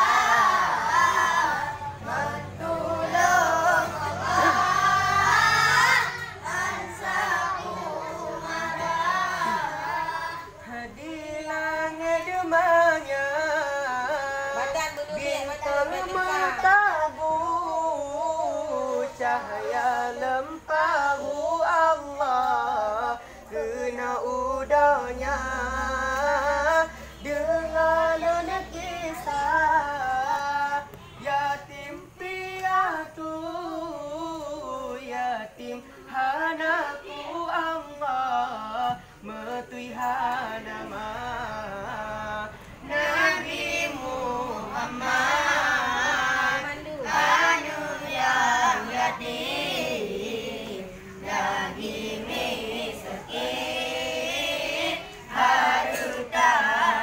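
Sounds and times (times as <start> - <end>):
young voices chanting: 0.0 - 57.0.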